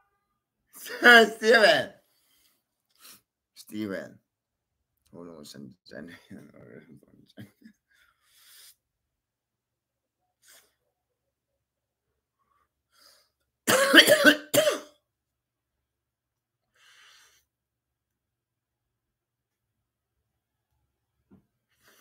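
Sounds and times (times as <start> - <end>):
faint breaths: 7.8 - 8.9
man coughing: 13.7 - 14.9.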